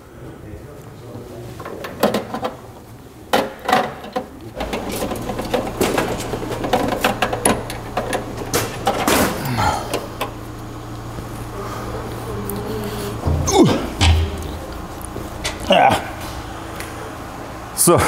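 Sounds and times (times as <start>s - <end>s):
steady low hum: 4.3s - 18.0s.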